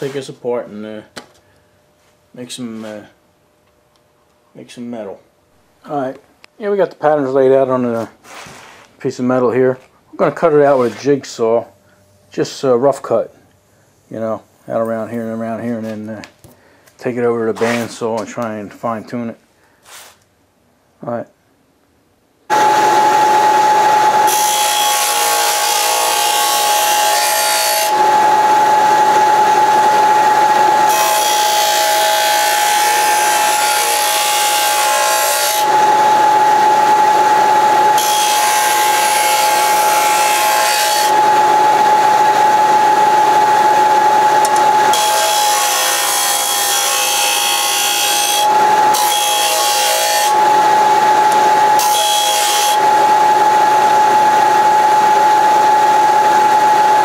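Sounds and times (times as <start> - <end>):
sheet metal grinding on sander: 22.5 - 55.1
disc sander whine: 22.5 - 57.0.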